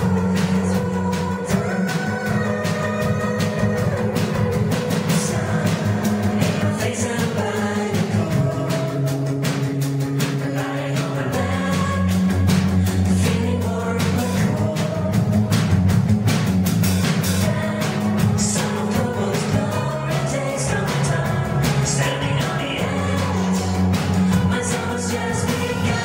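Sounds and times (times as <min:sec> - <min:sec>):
woman singing: 0:00.0 - 0:09.3, 0:10.3 - 0:15.7, 0:17.4 - 0:26.0
live band playing pop: 0:00.0 - 0:26.0.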